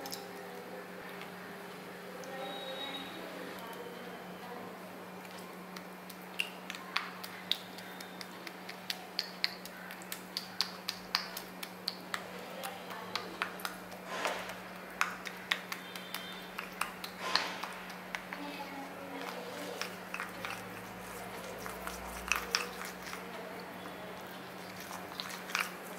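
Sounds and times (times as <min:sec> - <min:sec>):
spoon scraping: 0:19.1 - 0:23.4, 0:24.5 - 0:25.9.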